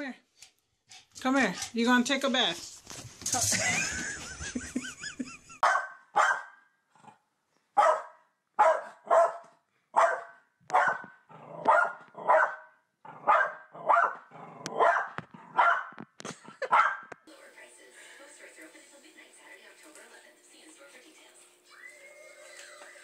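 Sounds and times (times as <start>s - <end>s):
dog barking: 5.6s - 6.6s, 7.8s - 16.0s, 16.6s - 17.1s.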